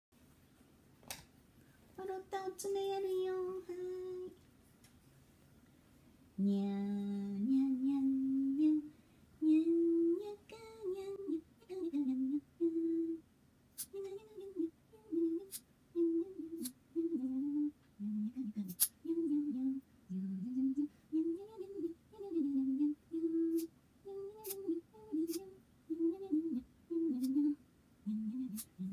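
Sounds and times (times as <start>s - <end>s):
woman humming a tune: 6.4s - 13.2s, 13.9s - 28.9s.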